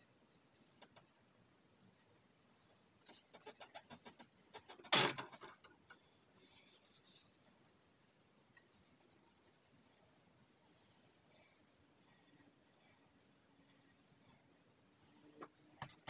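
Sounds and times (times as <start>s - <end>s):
cloth rubbing on wooden handle: 6.4s - 7.5s.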